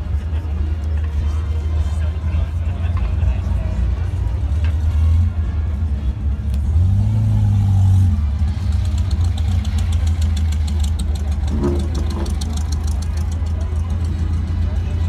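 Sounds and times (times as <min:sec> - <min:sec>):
car engine running: 0:04.7 - 0:15.0.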